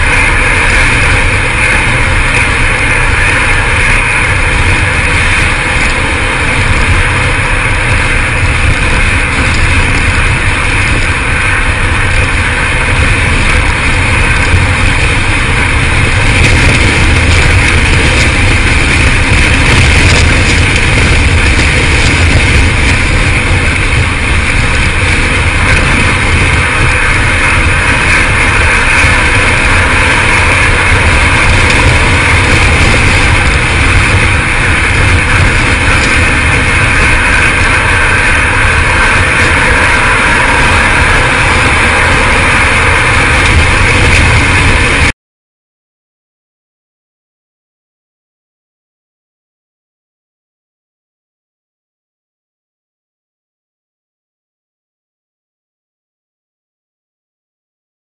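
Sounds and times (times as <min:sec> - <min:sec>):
road noise: 0:00.0 - 0:45.1
wind rushing: 0:00.0 - 0:45.1.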